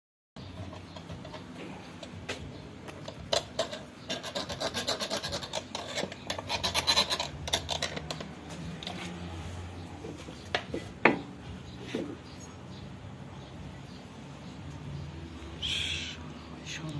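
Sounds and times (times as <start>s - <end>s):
hand tool scraping metal: 2.9s - 9.2s.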